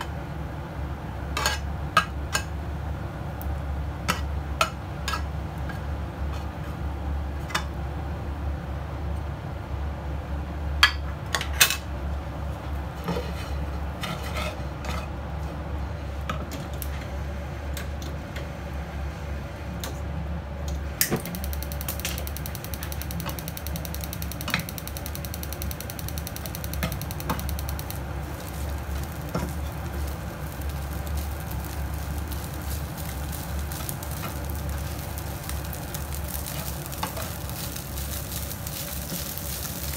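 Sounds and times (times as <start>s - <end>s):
steady low hum: 11.6s - 39.9s.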